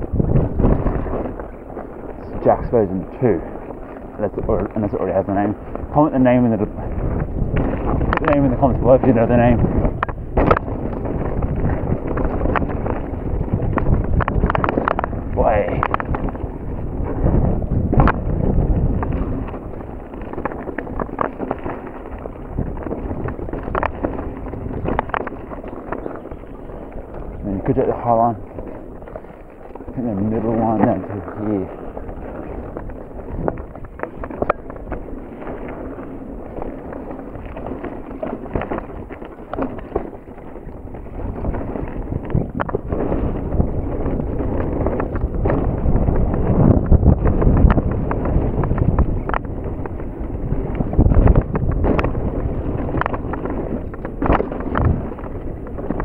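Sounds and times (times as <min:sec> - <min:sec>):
bike clicks and rattles: 0:00.0 - 0:56.0
tyre rumble on dirt: 0:00.0 - 0:56.0
wind buffeting microphone: 0:00.0 - 0:56.0.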